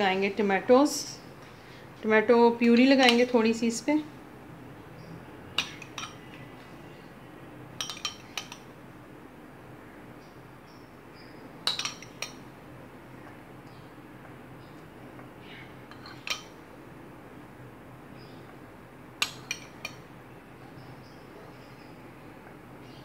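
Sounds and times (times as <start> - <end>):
metal spoon clinking on glass: 5.6 - 6.2, 7.8 - 8.6, 11.6 - 12.4.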